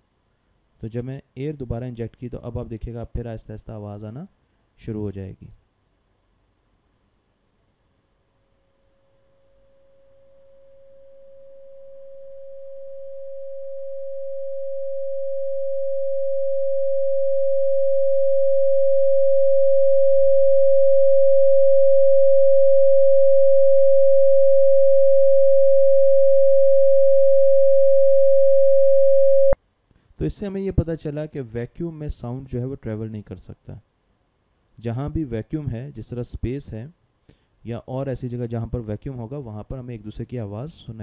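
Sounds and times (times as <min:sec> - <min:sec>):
sine tone: 0:08.5 - 0:29.6.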